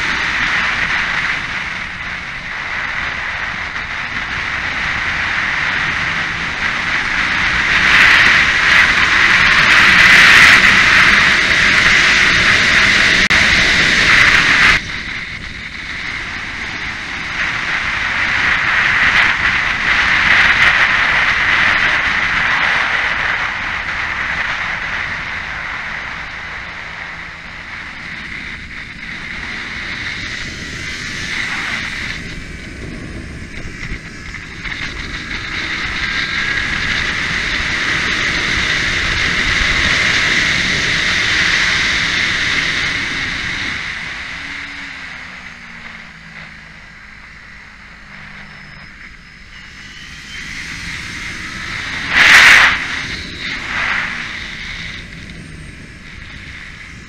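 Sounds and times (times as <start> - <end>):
motorcycle engine running: 0.0 - 57.0
wind rushing over microphone: 0.0 - 57.0.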